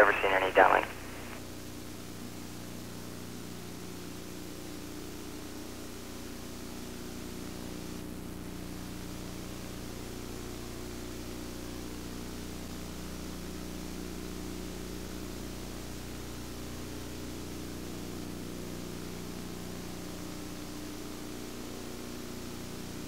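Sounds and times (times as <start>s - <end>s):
low steady tones: 0.0s - 1.4s.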